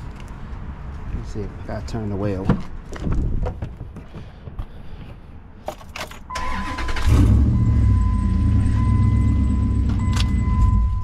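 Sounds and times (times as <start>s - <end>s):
engine cranking and idling: 6.0s - 11.0s
electronic warning tone: 7.4s - 11.0s.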